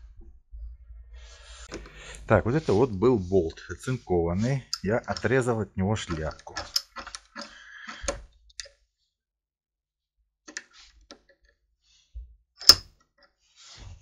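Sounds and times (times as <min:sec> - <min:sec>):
metal scrape: 0:01.2 - 0:08.1.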